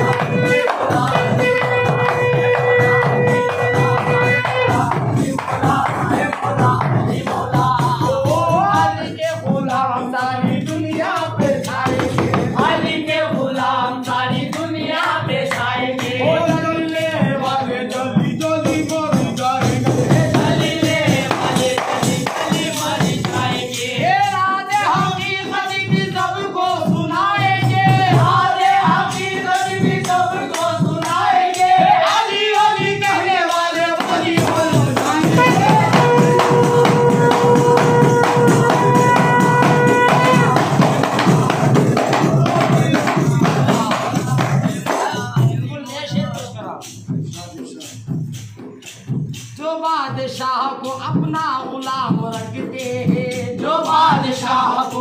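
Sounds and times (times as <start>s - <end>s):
held note: 0.0s - 5.0s, 35.4s - 41.0s
devotional song singing: 0.0s - 55.0s
jingling percussion: 0.0s - 55.0s.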